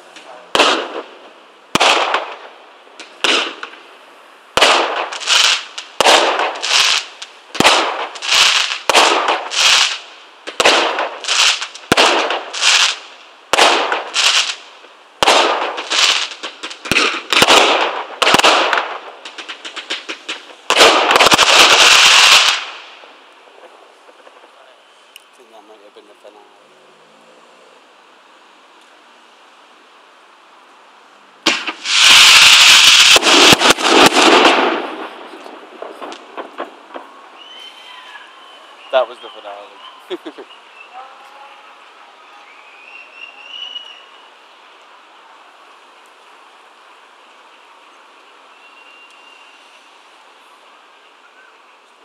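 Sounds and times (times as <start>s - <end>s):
firework crackling barrage: 0.0s - 26.5s, 28.5s - 52.0s
firework shells bursting: 0.1s - 3.9s, 4.5s - 25.3s, 31.4s - 40.4s.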